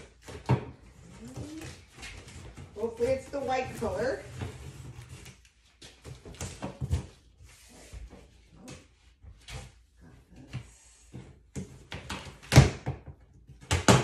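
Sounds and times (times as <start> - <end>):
cardboard scrapes and rustles: 0.9 - 5.5.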